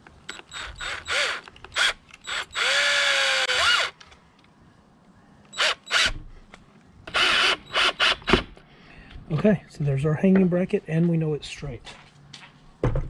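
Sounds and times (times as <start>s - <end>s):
cordless drill driving screws: 0.3s - 4.0s, 5.5s - 6.2s, 7.1s - 8.5s.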